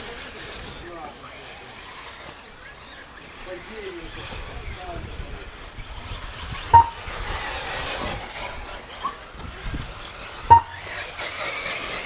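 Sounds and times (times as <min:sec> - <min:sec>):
electric motors whining: 0:00.0 - 0:12.0
click with high tone: 0:06.8 - 0:07.0, 0:10.5 - 0:10.8.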